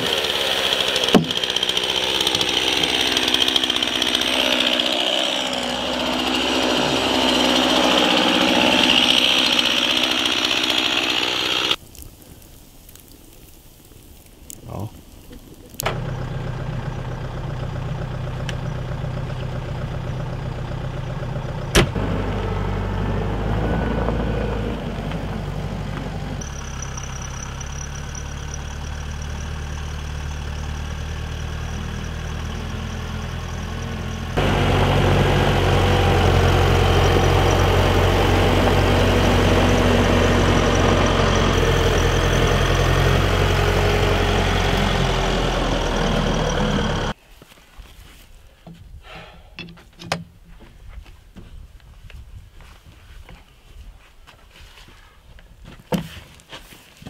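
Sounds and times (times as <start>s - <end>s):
diesel engine running: 0.0s - 11.8s, 15.7s - 47.2s.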